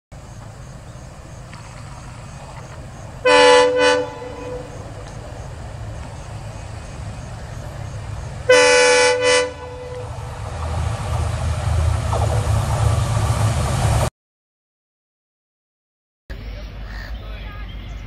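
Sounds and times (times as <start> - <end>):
diesel locomotive engine rumble: 0.1 - 14.1, 16.3 - 18.0
locomotive horn blasts: 3.2 - 5.1, 8.5 - 10.4.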